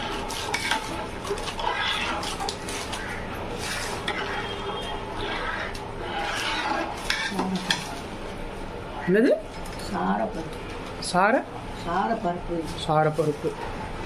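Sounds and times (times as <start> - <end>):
ladle scraping metal pot: 0.0 - 8.1
ladle stirring thick liquid: 0.0 - 8.4.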